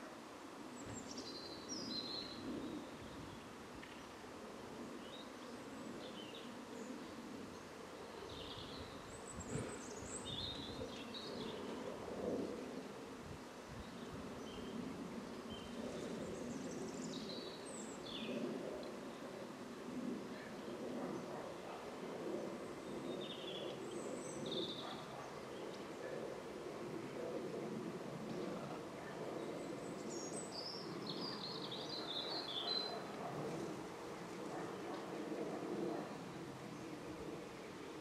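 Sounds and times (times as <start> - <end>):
songbirds chirping: 0.0 - 38.0
steady low background noise: 0.0 - 38.0.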